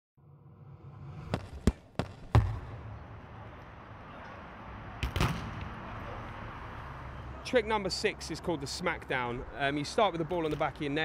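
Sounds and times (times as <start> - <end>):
football being kicked: 1.3 - 2.7.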